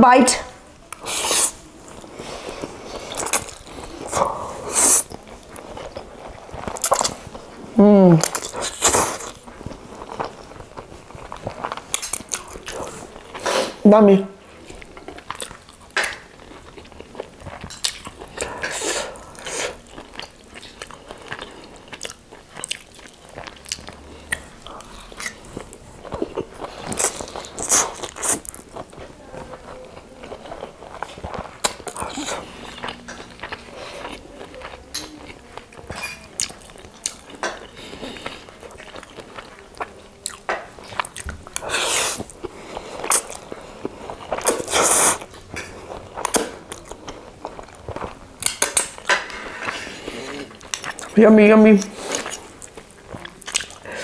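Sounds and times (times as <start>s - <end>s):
wet chewing and mouth clicks: 0.9s - 13.6s, 14.5s - 54.0s
noodles slurped: 1.0s - 7.2s, 41.1s - 47.8s.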